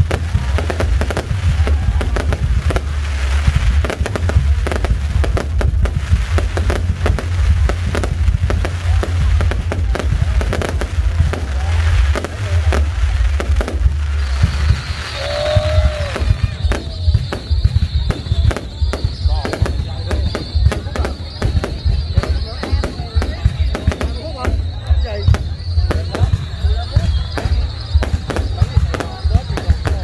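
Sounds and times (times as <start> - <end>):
continuous low rumble: 0.0 - 30.0
fireworks bangs and crackles: 0.0 - 30.0.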